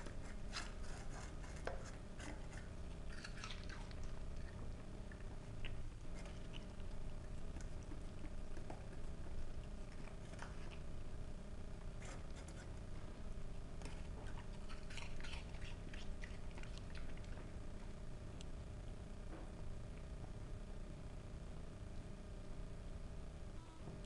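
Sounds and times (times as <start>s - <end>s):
dog chewing and licking: 0.0s - 11.0s, 13.8s - 17.6s.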